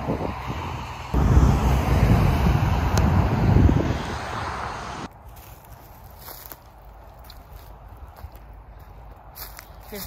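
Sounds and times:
low rumble: 0.0 - 5.1
faint footsteps: 5.1 - 10.0.

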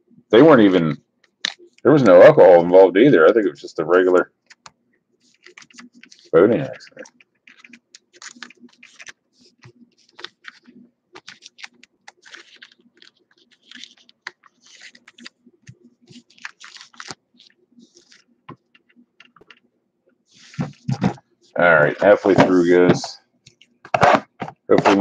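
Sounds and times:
cards flipped and slid: 4.4 - 19.6, 20.3 - 21.2.

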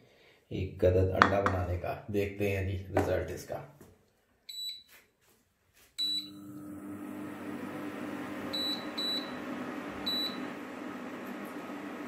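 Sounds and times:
cooktop touch panel beeping: 6.0 - 6.9, 8.4 - 10.6
cooling fan humming: 6.3 - 12.0.

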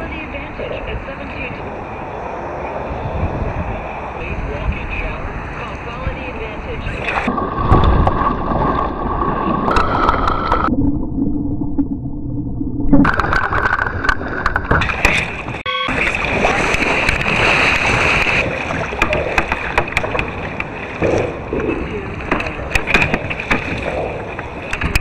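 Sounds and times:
wind on microphone: 0.0 - 11.1
paddle splashes: 6.9 - 10.7, 13.0 - 25.0
water sloshing around kayak: 13.1 - 25.0.

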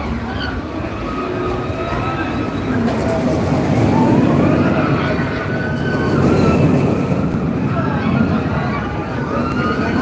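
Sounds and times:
crowd chatter: 0.0 - 10.0
roller coaster rumbling on track: 0.0 - 10.0.

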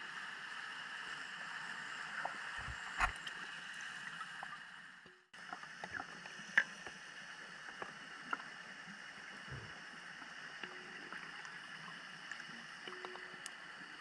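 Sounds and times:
faint clicks: 12.2 - 13.7.

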